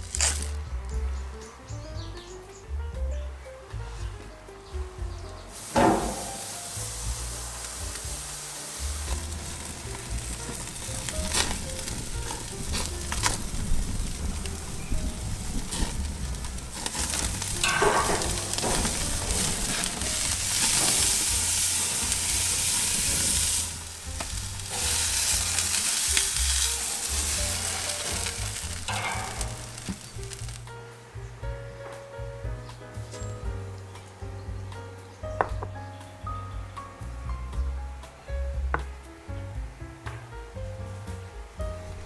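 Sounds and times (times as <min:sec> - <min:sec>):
steak sizzling on a grill: 0:00.0 - 0:00.6, 0:05.0 - 0:32.3
wood fire crackling: 0:00.0 - 0:34.8, 0:37.2 - 0:42.0.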